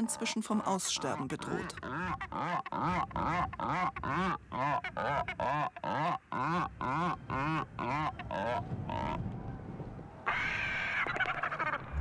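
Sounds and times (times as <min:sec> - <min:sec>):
albatrosses calling: 0:00.0 - 0:09.2.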